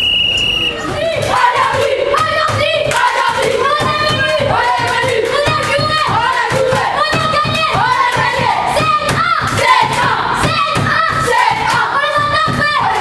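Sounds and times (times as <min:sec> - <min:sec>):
boys chanting in unison: 0:00.9 - 0:13.0
hand claps: 0:01.5 - 0:13.0.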